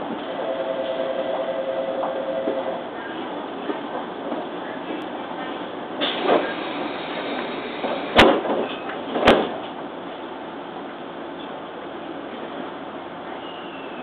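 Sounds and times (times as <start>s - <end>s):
train noise: 0.0s - 14.0s
train doors thudding shut: 6.0s - 9.8s.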